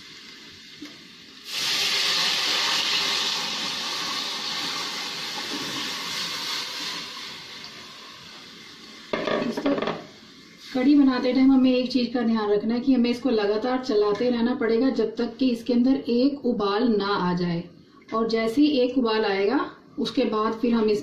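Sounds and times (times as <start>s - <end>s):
batter hissing in hot oil: 0.0s - 11.8s
faint frying sizzle: 0.0s - 13.4s.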